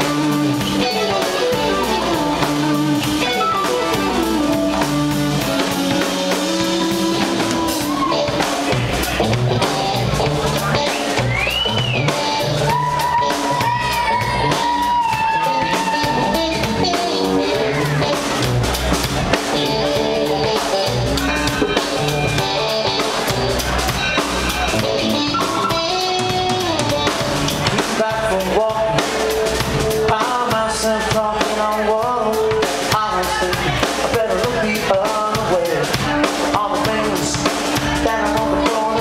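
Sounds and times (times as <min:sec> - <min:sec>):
drum kit: 0:00.0 - 0:39.0
electric guitar: 0:00.0 - 0:39.0
man singing: 0:11.7 - 0:18.4, 0:24.6 - 0:39.0.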